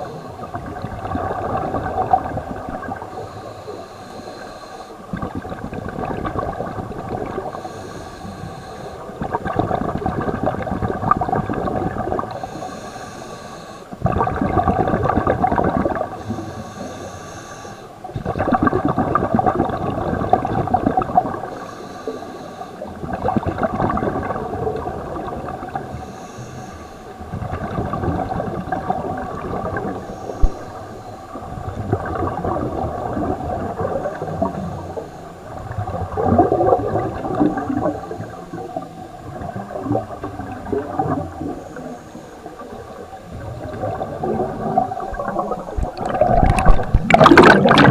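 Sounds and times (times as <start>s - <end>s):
rush of bubbles: 0.4s - 3.1s, 5.1s - 7.6s, 9.2s - 12.4s, 14.0s - 16.2s, 18.1s - 21.5s, 23.0s - 26.0s, 27.2s - 34.8s, 35.5s - 41.6s, 42.6s - 47.9s
regulator hiss on inhale: 3.0s - 5.2s, 7.4s - 9.2s, 12.2s - 14.0s, 16.1s - 18.1s, 21.3s - 23.0s, 25.6s - 27.3s, 28.3s - 32.3s, 34.2s - 35.6s, 37.0s - 38.9s, 41.0s - 43.1s.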